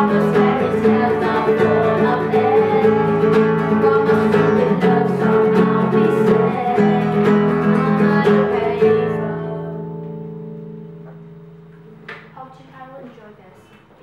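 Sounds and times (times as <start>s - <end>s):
voices singing along: 0.0s - 9.9s
acoustic guitar strumming: 0.0s - 12.4s.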